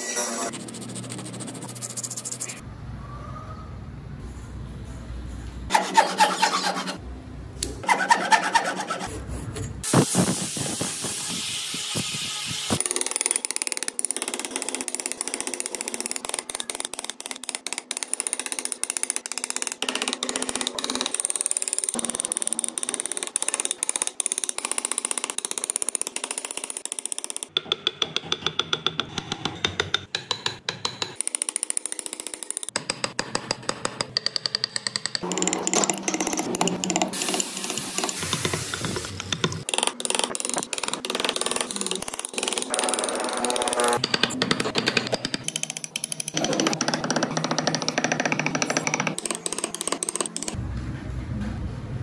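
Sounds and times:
file rasping over wood: 0:05.7 - 0:07.0, 0:07.8 - 0:09.1
chisels clicking into wood: 0:12.8 - 0:50.6.

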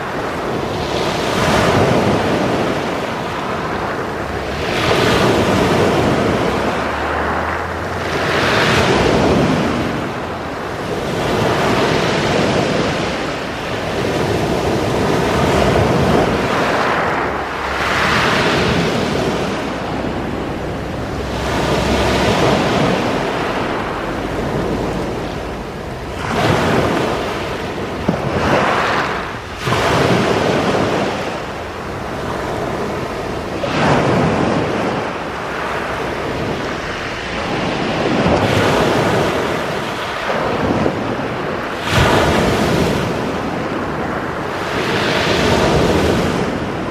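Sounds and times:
waves breaking on pebble beach: 0:00.0 - 0:46.9.

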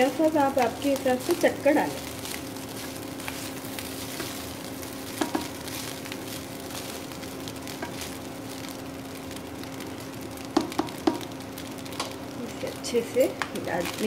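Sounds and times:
fried rice sizzling in a wok: 0:00.0 - 0:14.0
steady low hum: 0:00.0 - 0:14.0
spatula knocking against pan: 0:05.2 - 0:05.6, 0:10.5 - 0:11.2.

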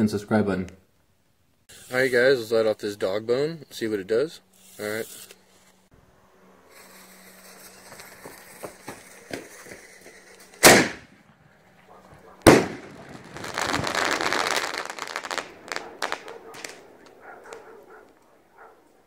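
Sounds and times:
firework crackling: 0:01.6 - 0:02.6, 0:06.6 - 0:18.3
firework shell bursting: 0:06.7 - 0:11.5, 0:12.4 - 0:17.2
mortar lift charge bang: 0:12.5 - 0:13.2.

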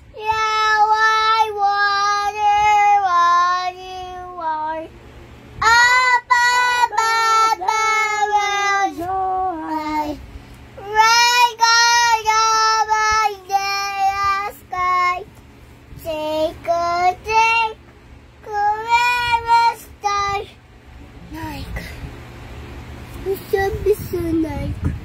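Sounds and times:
girl singing: 0:00.0 - 0:04.9, 0:05.6 - 0:10.2, 0:10.8 - 0:15.2, 0:18.4 - 0:20.6, 0:23.2 - 0:25.0.

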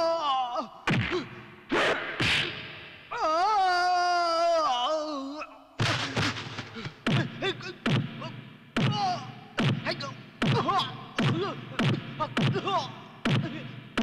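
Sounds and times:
punch and kick impacts: 0:00.9 - 0:02.7, 0:05.8 - 0:14.0.

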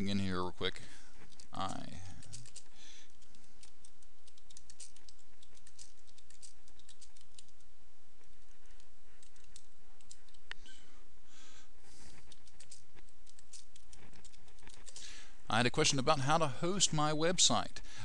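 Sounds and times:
keyboard typing: 0:01.2 - 0:10.6, 0:12.1 - 0:15.2.

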